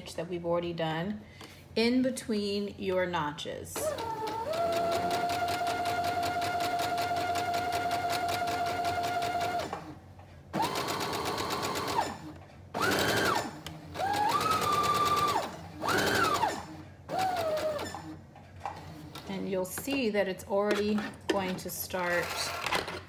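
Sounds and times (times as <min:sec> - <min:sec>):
sewing machine stitching: 0:03.8 - 0:10.0, 0:10.6 - 0:19.6.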